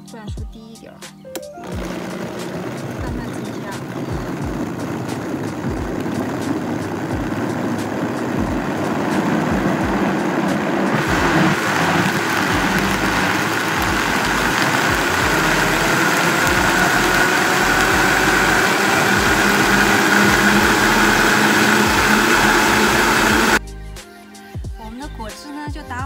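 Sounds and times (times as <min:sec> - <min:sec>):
blender motor whine: 0:01.6 - 0:23.6.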